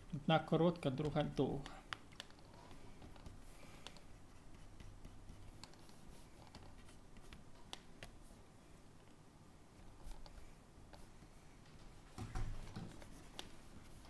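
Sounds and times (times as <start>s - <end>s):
stylus scratching on tablet: 1.0s - 8.4s.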